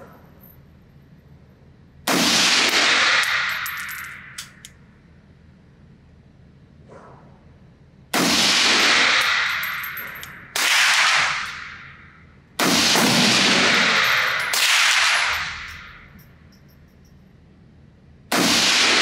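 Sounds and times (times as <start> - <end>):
rifle shots echoing indoors: 2.0 - 4.7, 8.1 - 16.2, 18.3 - 19.0
light metallic clinks: 3.3 - 4.7, 9.2 - 10.5, 15.2 - 17.4.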